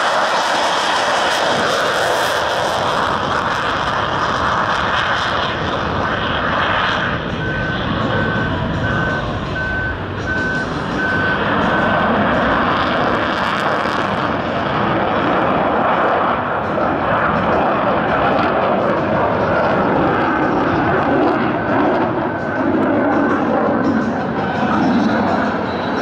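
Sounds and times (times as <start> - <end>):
jet engine roar: 0.0 - 26.0
high electronic beeps: 7.4 - 12.2.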